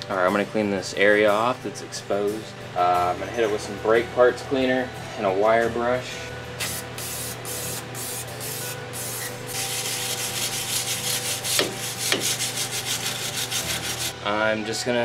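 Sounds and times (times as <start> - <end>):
aerosol can hissing: 6.6 - 14.1
wire brush scrubbing metal: 7.0 - 14.2.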